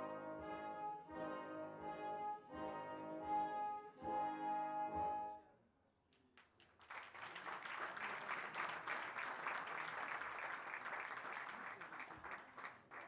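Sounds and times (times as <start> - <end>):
audience clapping: 6.2 - 13.0.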